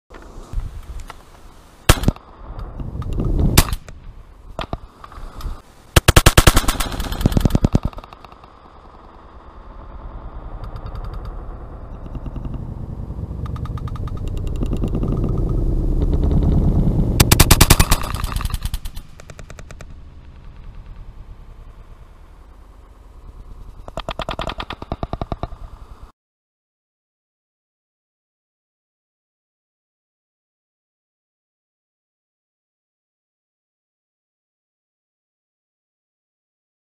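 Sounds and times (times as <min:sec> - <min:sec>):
shotgun shots: 0:01.9 - 0:02.2, 0:03.5 - 0:03.9, 0:06.0 - 0:08.3, 0:17.2 - 0:19.3
pigeon wings clattering: 0:06.5 - 0:08.5, 0:17.2 - 0:21.2, 0:23.8 - 0:25.6.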